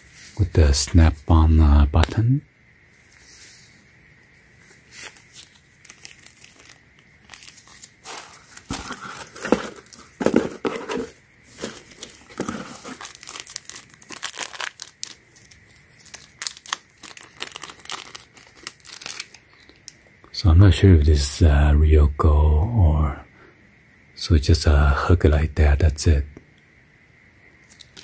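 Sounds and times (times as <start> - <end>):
paper and plastic bag crinkling: 4.6 - 19.6.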